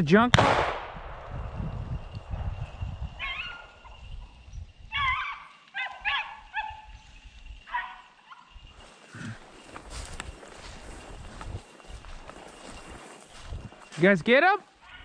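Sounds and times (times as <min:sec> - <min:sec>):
dogs baying: 0:03.2 - 0:04.0, 0:04.9 - 0:07.0, 0:07.6 - 0:09.5.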